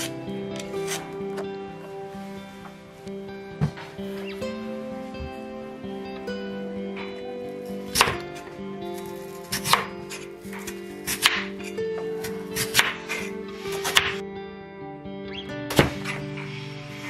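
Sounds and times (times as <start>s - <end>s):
knife slicing potatoes on board: 0.8s - 1.1s, 7.8s - 8.2s, 8.9s - 14.2s.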